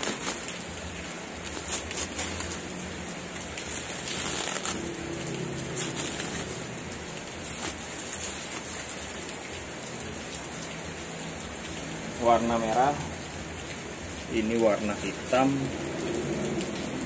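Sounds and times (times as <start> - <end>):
plastic wrap crinkling: 0.0 - 9.8
rain hissing: 0.0 - 17.0.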